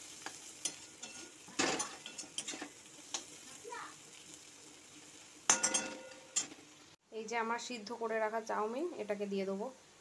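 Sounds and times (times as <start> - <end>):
faint frying sizzle: 0.0 - 10.0
metal spatula scraping wok: 0.2 - 3.3.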